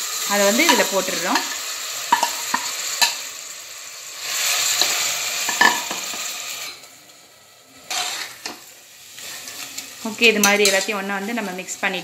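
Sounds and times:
meat sizzling in hot oil: 0.0s - 12.0s
metal ladle scraping pot: 7.8s - 8.6s.

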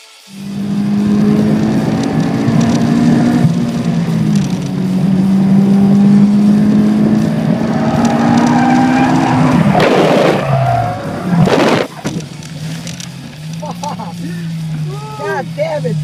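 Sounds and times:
car engine at high revs: 0.3s - 16.0s
tyres squealing and skidding: 7.5s - 12.9s.

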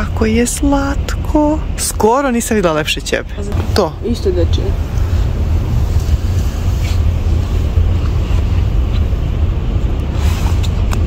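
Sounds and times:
fabric rubbing on microphone: 5.1s - 9.2s, 10.1s - 10.9s.

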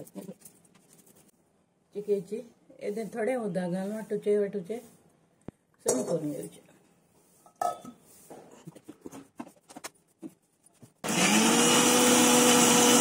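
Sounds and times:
mixer grinder whirring: 11.0s - 13.0s.

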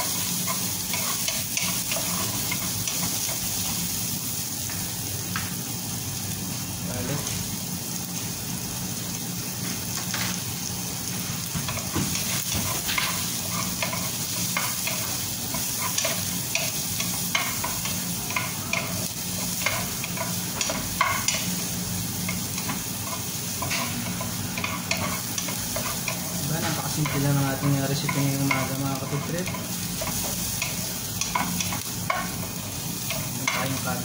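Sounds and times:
onion sizzling in hot oil: 0.0s - 34.0s
spatula scraping and knocking pan: 11.6s - 21.5s, 22.3s - 33.8s.

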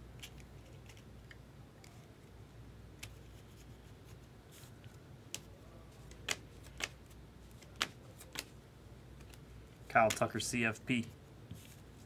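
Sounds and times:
trading cards flicking: 5.3s - 8.6s, 10.0s - 10.3s.

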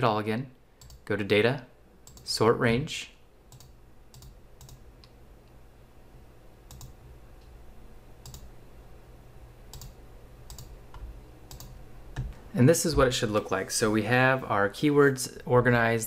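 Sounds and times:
low steady hum: 0.0s - 16.0s
computer mouse clicking: 0.8s - 1.0s, 2.0s - 2.2s, 3.5s - 5.2s, 6.7s - 7.0s, 8.2s - 8.5s, 9.7s - 12.4s.

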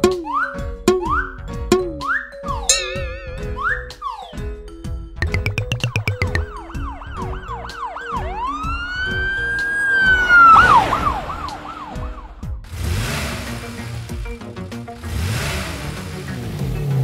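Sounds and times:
background music: 0.0s - 12.5s
police siren yelping and wailing: 6.6s - 12.4s.

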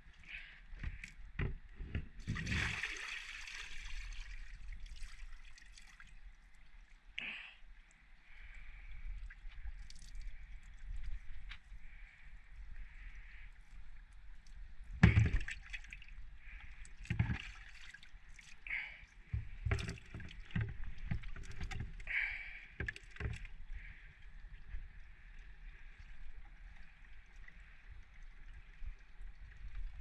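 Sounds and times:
water sloshing: 15.0s - 26.0s.

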